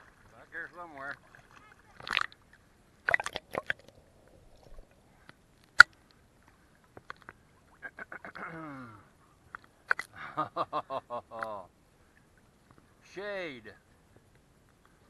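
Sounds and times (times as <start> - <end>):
water splashing and dripping: 0.0 - 5.0.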